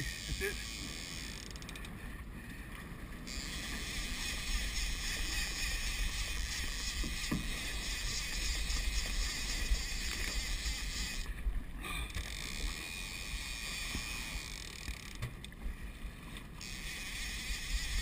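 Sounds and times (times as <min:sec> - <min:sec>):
boat washing through water: 0:00.0 - 0:01.1.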